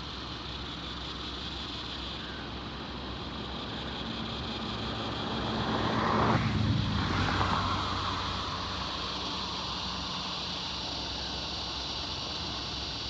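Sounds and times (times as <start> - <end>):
steady high hiss: 0.0 - 5.7, 7.3 - 13.0
vehicle engine hum passing: 0.7 - 13.0.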